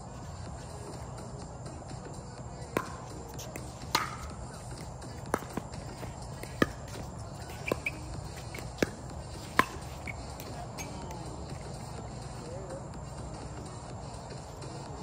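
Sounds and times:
paddles hitting plastic ball: 0:03.6 - 0:04.3.

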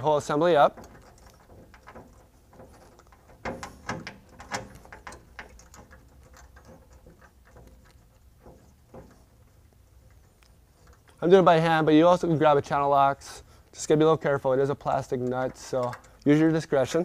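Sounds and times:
plastic valve parts clicking: 0:15.0 - 0:16.3.

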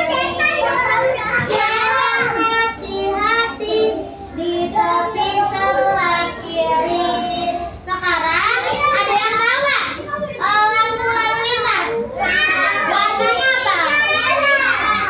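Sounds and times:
children singing: 0:00.0 - 0:09.2.

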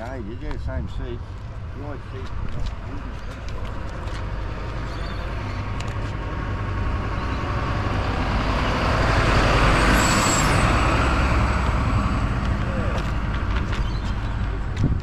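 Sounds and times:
vehicle driving past: 0:03.6 - 0:14.4.

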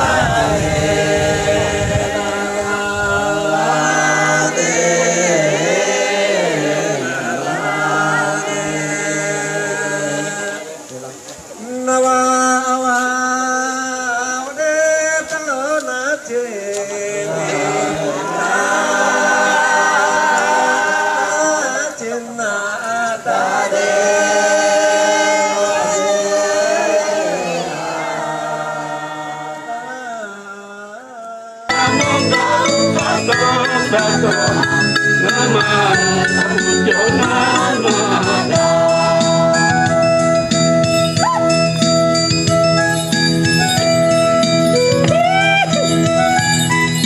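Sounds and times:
voices singing a slow chant: 0:00.0 - 0:40.6
instrumental music: 0:31.7 - 0:47.0.

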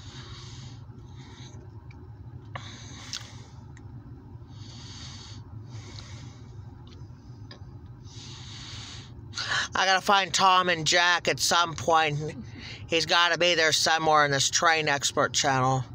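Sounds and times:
heavy hissing breaths: 0:00.0 - 0:01.7, 0:02.5 - 0:03.7, 0:04.4 - 0:06.7, 0:08.0 - 0:09.6
low vehicle rumble: 0:00.0 - 0:15.9.

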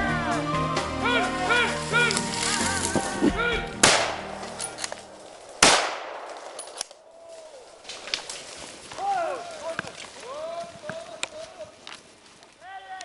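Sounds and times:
gunshots with echo: 0:03.8 - 0:04.7, 0:05.5 - 0:06.8.

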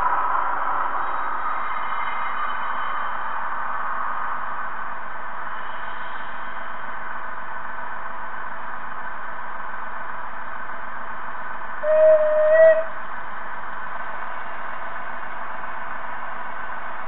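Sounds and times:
model locomotive whistle: 0:11.8 - 0:13.0.

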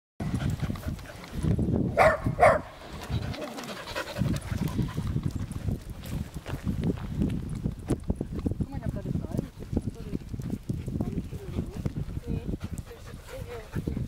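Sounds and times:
dog barking: 0:02.0 - 0:02.7.

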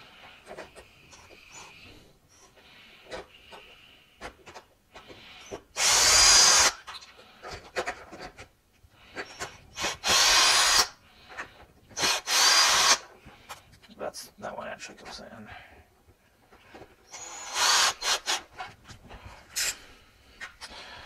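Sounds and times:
drill bursts: 0:05.8 - 0:06.8, 0:09.7 - 0:10.9, 0:12.0 - 0:13.1, 0:17.1 - 0:18.4.

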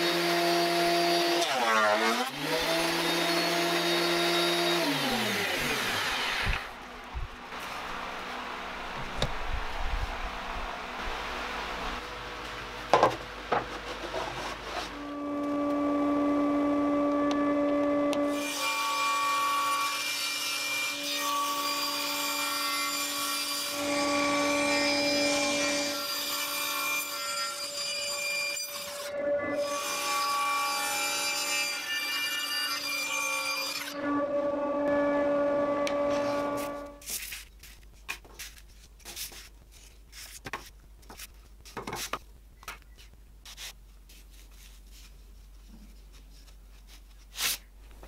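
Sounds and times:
table saw whining: 0:00.0 - 0:06.8.

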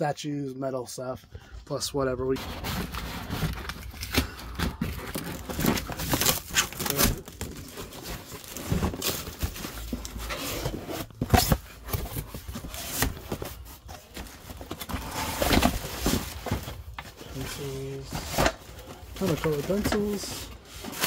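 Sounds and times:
cardboard boxes scraping and knocking: 0:02.3 - 0:21.0.

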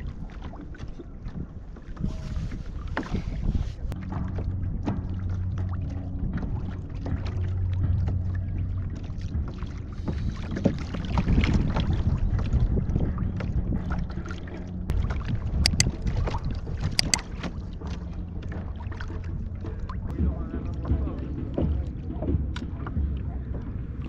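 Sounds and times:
wind buffeting microphone: 0:00.0 - 0:21.6
water lapping against kayak hull: 0:00.0 - 0:24.0
sharp clicks: 0:15.7 - 0:15.9, 0:17.0 - 0:17.2.

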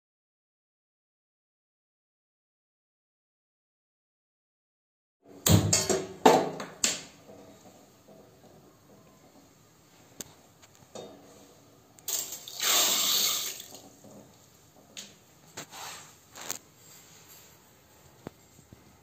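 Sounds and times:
water pouring into metal pot: 0:12.1 - 0:14.0.

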